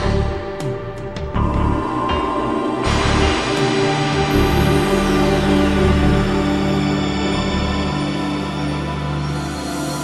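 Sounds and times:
dark suspenseful music: 0:00.0 - 0:10.0.

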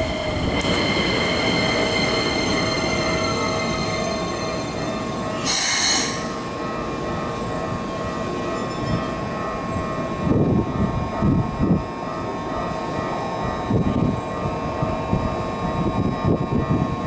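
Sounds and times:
electric train braking whine: 0:00.0 - 0:06.6
short loud hiss: 0:05.5 - 0:06.2.

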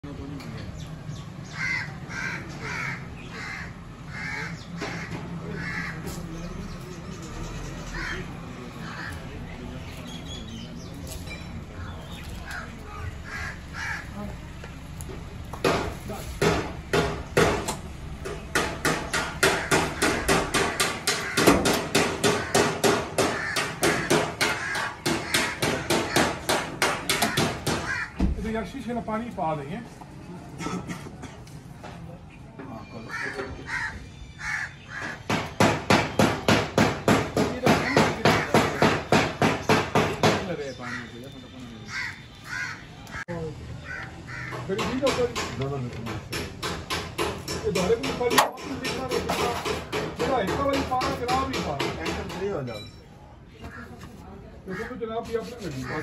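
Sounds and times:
crow cawing: 0:01.4 - 0:06.2, 0:07.9 - 0:09.2, 0:12.4 - 0:14.3, 0:19.4 - 0:28.3, 0:33.1 - 0:35.4, 0:37.7 - 0:39.1, 0:40.7 - 0:41.2, 0:41.8 - 0:44.7, 0:53.6 - 0:54.1, 0:54.7 - 0:55.0, 0:55.8 - 0:56.0
rhythmic hammering: 0:15.5 - 0:28.2, 0:35.0 - 0:40.6, 0:44.4 - 0:52.7.

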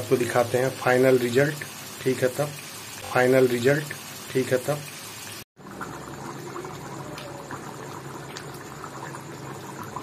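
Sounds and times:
thick gravy bubbling and popping: 0:05.6 - 0:10.0.

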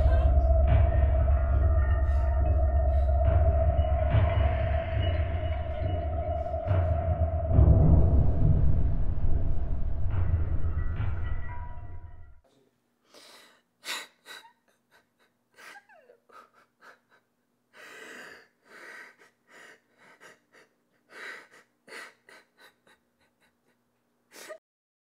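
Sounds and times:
loud low rumble: 0:00.0 - 0:12.4
person gasping and breathing: 0:13.0 - 0:23.8.

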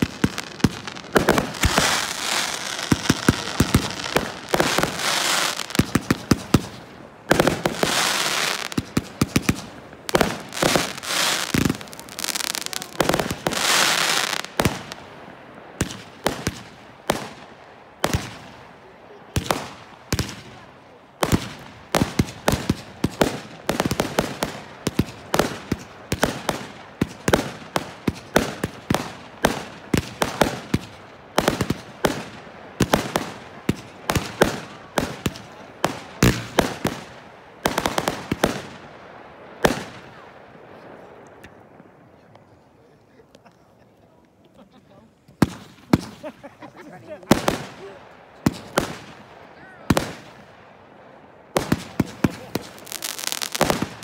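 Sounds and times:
fireworks bursting with crackling: 0:00.0 - 0:54.0.

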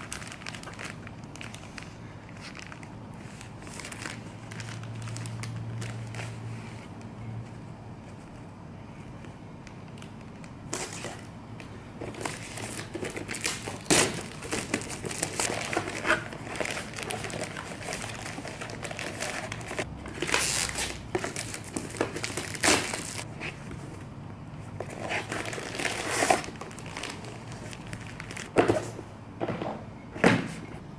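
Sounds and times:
packaging crinkling and rustling: 0:00.0 - 0:06.8, 0:09.9 - 0:23.3, 0:24.8 - 0:29.0.

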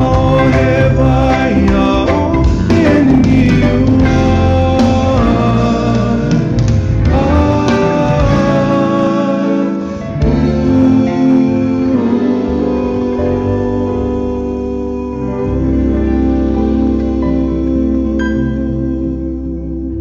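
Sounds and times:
heavy bass: 0:00.0 - 0:20.0
music with held chords: 0:00.0 - 0:20.0.

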